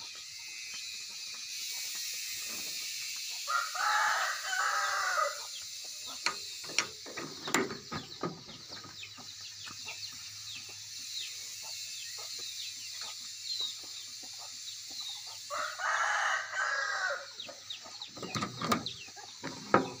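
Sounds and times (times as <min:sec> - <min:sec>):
rooster crowing: 0:03.4 - 0:05.6, 0:15.4 - 0:17.4.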